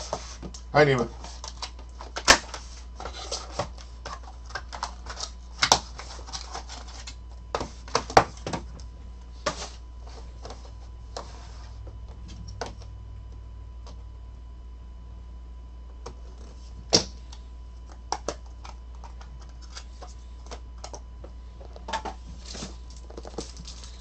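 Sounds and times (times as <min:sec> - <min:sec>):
cards and box handled on table: 0:00.0 - 0:13.0, 0:16.0 - 0:24.0.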